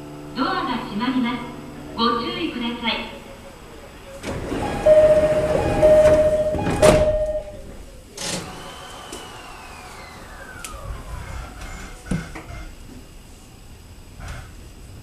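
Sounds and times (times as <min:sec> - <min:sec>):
electric train running noise: 0:00.0 - 0:15.0
steady high tone: 0:04.5 - 0:07.9
electric motor whine falling: 0:08.2 - 0:11.3.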